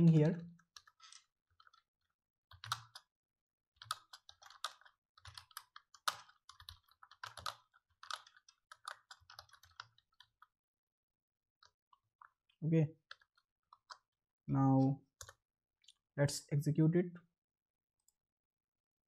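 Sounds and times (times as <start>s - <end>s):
typing on computer keyboard: 0.0s - 1.9s, 2.5s - 3.1s, 3.8s - 10.5s, 13.1s - 14.1s.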